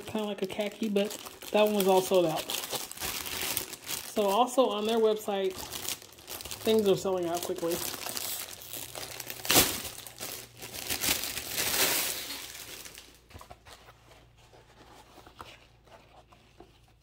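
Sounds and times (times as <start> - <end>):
plastic bag crinkling: 0.0 - 13.6.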